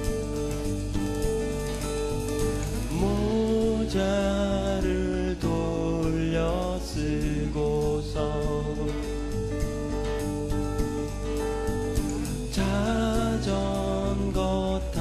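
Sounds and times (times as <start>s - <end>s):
keyboard: 0.0s - 15.0s
steady bass: 0.0s - 15.0s
strummed acoustic guitar: 0.0s - 15.0s
man singing: 2.9s - 9.7s, 12.5s - 15.0s.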